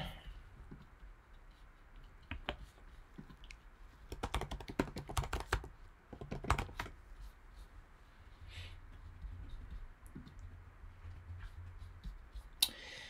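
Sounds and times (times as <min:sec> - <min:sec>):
typing on computer keyboard: 0:04.1 - 0:07.0.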